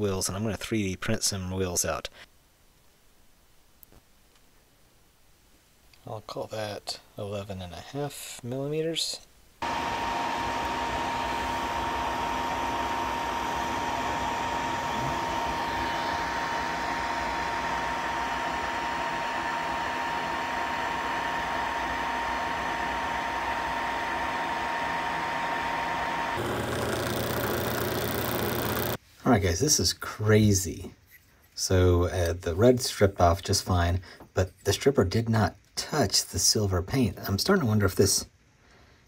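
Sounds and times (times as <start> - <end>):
high whine: 9.6 - 20.1.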